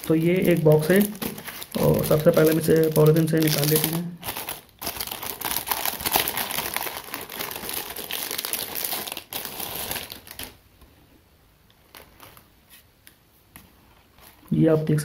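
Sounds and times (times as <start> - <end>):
plastic wrapper crinkling: 0.0 - 10.9, 11.7 - 12.6.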